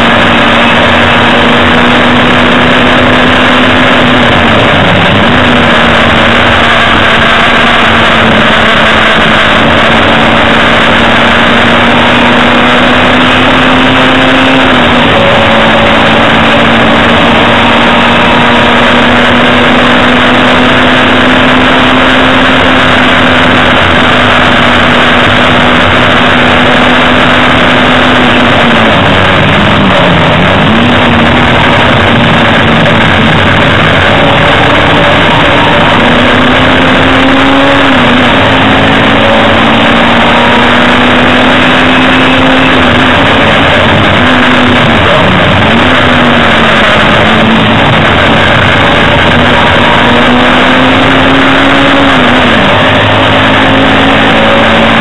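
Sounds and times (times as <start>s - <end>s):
race car engine at high revs: 0.0s - 55.0s.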